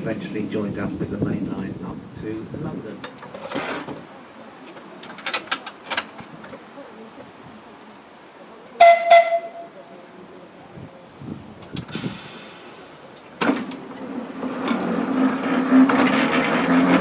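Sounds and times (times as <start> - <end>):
tram bell ringing: 8.8 - 9.7.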